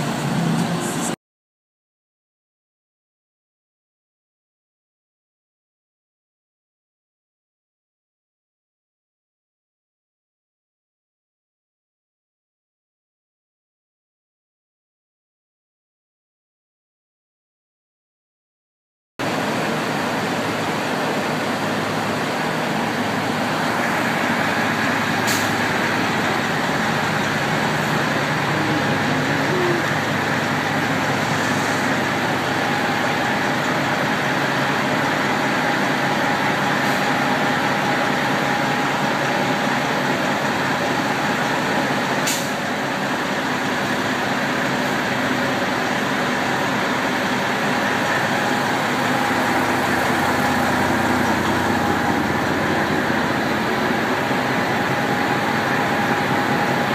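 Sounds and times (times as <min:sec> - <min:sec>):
diesel truck engines idling: 0:00.0 - 0:01.2, 0:19.2 - 0:56.9.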